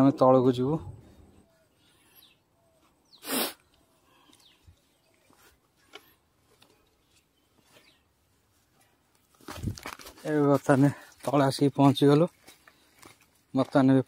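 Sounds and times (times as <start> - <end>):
faint bird calls: 1.0 - 8.1.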